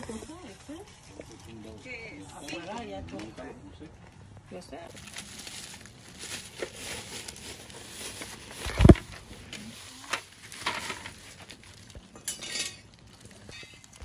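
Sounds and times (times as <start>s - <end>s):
plastic bag rustling: 4.9s - 14.0s.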